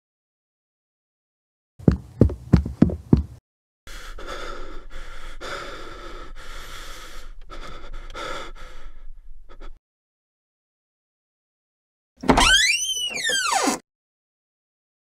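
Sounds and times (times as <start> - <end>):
person breathing heavily: 3.9 - 9.8.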